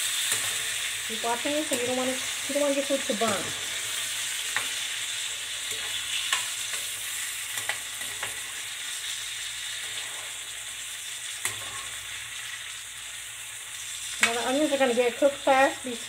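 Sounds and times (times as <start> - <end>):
vegetables sizzling in oil: 0.0 - 16.0
metal spoon scraping a pan: 0.1 - 0.9, 5.5 - 8.6, 11.4 - 12.2.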